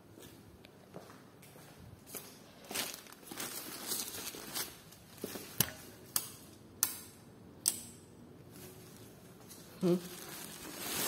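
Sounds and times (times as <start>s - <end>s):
fabric and plastic rustling: 2.1s - 6.0s, 8.5s - 11.0s.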